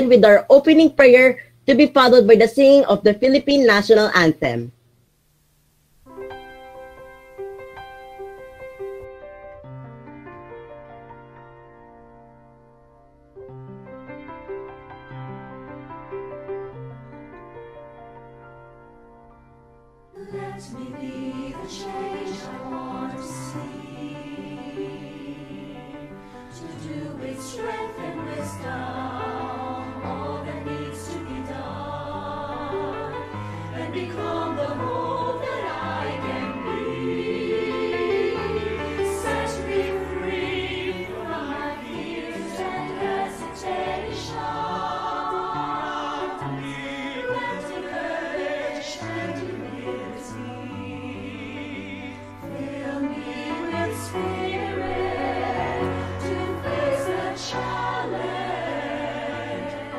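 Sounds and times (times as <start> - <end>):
choir singing over instruments: 20.2 - 59.9.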